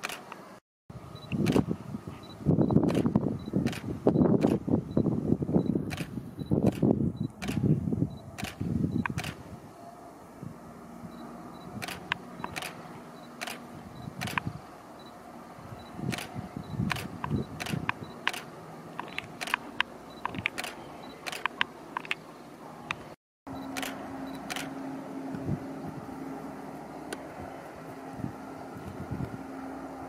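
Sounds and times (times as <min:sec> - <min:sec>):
diesel train hum: 0:00.0 - 0:30.0
sharp irregular clicks: 0:08.4 - 0:09.4, 0:11.8 - 0:12.8, 0:13.4 - 0:13.6, 0:14.2 - 0:14.5, 0:16.1 - 0:22.2.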